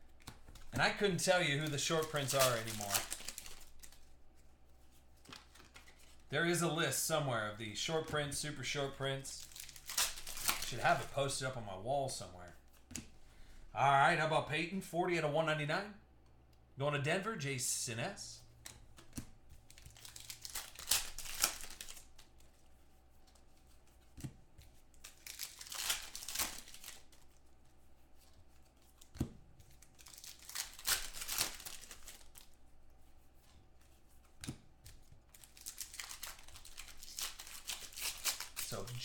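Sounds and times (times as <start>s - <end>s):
foil wrappers tearing and crinkling: 1.2s - 4.1s, 9.3s - 11.1s, 19.7s - 22.1s, 24.9s - 27.4s, 29.8s - 32.5s, 35.3s - 39.0s.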